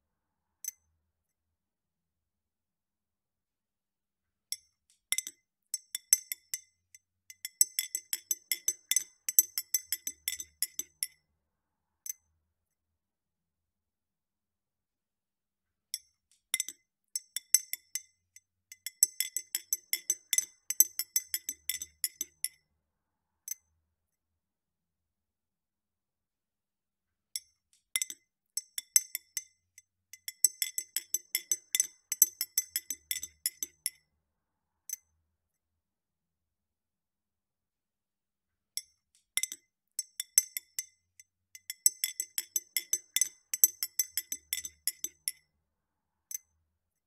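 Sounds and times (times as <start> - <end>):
spoon stirring ice in glass: 30.4 - 33.9, 41.6 - 45.4.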